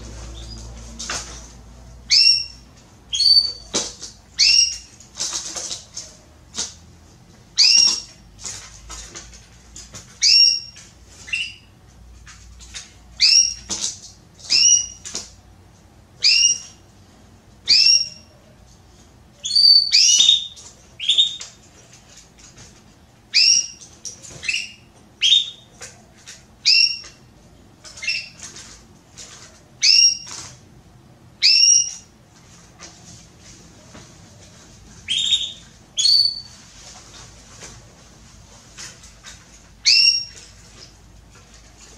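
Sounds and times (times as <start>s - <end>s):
canary chirping: 0.2s - 0.8s, 2.0s - 6.7s, 7.5s - 9.3s, 9.9s - 11.8s, 12.6s - 15.3s, 16.2s - 16.8s, 17.6s - 18.5s, 19.4s - 21.6s, 23.3s - 26.0s, 26.6s - 28.7s, 29.3s - 30.6s, 31.4s - 32.1s, 35.0s - 37.0s, 39.6s - 40.9s.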